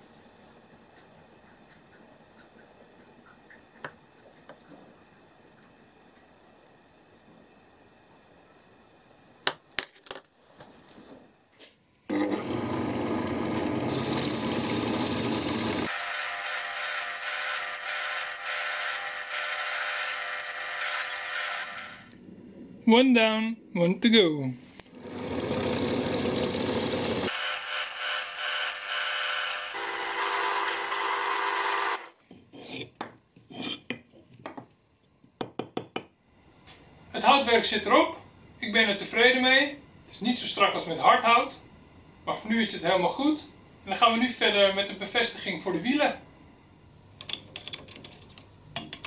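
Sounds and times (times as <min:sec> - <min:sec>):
drill press boring into wood: 0:12.1 - 0:22.1, 0:25.0 - 0:32.1.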